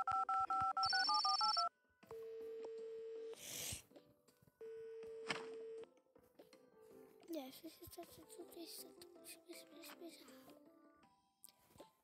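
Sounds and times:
telephone ringback beeps: 0.0 - 3.4.

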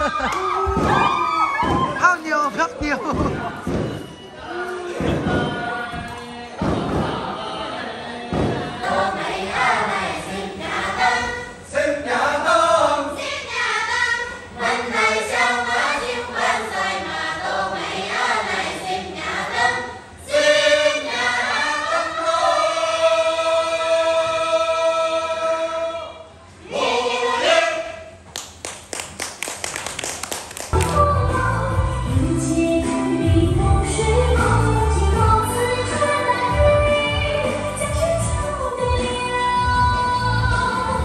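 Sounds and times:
women singing in chorus: 3.4 - 25.8, 30.8 - 41.0.

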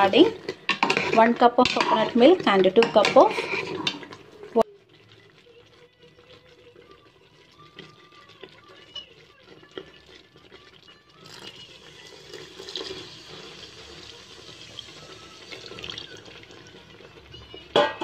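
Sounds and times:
water pouring into a pot: 3.8 - 17.8.

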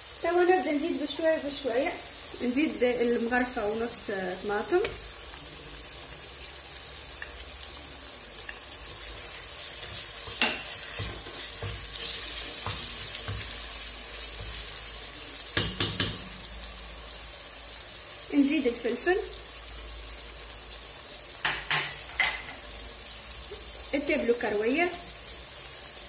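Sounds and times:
food sizzling in hot oil: 0.0 - 26.0
wooden spoon stirring: 8.5 - 13.8
spoon knocking against pot: 15.6 - 16.3.

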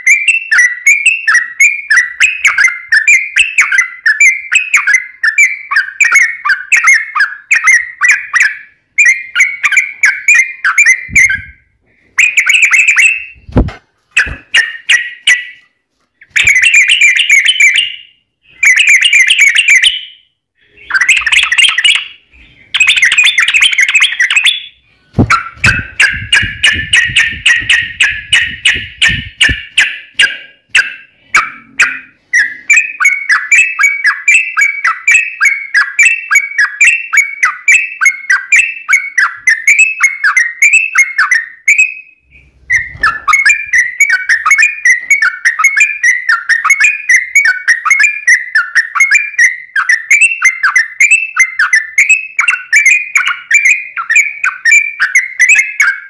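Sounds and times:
low thumps: 13.4 - 14.5, 25.1 - 29.8
bird singing chattering phrases: 16.2 - 36.7.

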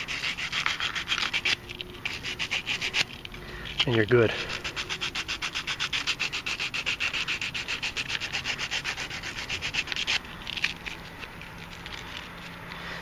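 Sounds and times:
sandpaper rubbing back and forth: 0.0 - 11.0
light handling sounds: 10.2 - 13.0.

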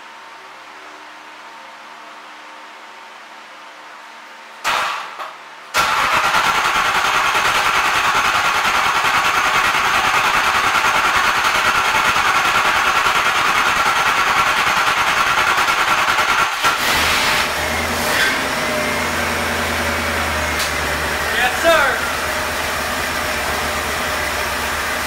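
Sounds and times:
engine running loudly: 6.2 - 25.0.

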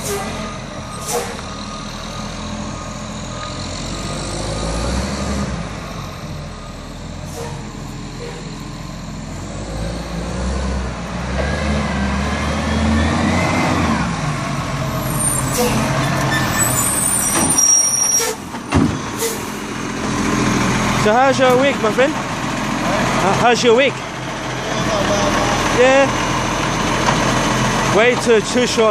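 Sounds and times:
garbage truck diesel engine: 0.0 - 28.9
air brake hisses: 19.2 - 19.5.

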